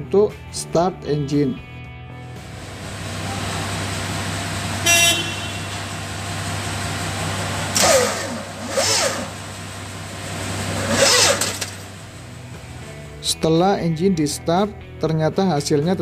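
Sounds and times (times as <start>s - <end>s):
starter motor cranking engine: 2.4s - 12.8s.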